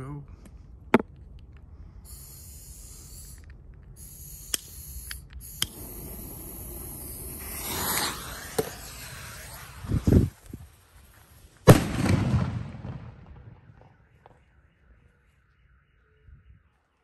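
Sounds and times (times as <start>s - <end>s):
lit fuse hissing: 2.0s - 11.6s
sharp clicks: 3.3s - 5.9s.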